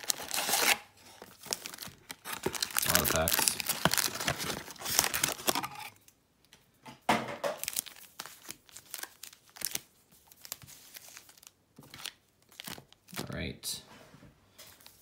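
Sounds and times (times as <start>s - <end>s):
card pack wrappers crinkling: 0.0s - 6.0s, 7.6s - 13.4s.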